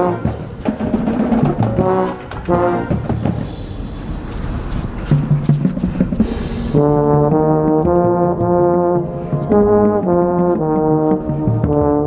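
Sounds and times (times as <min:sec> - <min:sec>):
baritone horn sustained notes: 0:00.0 - 0:00.6, 0:01.6 - 0:03.6, 0:06.7 - 0:12.0
marching band hits: 0:00.0 - 0:12.0.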